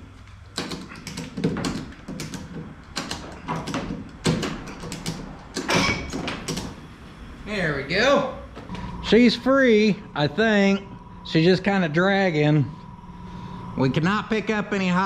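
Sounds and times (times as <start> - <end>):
metal clanks and creaks: 5.6 - 6.5.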